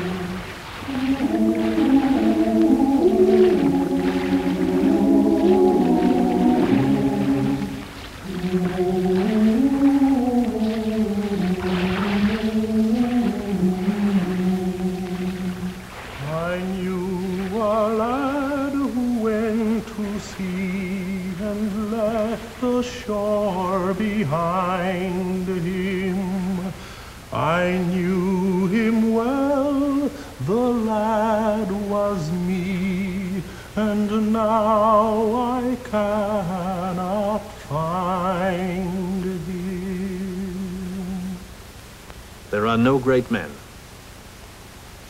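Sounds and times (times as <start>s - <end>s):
mournful solo film score melody: 0.0s - 19.7s.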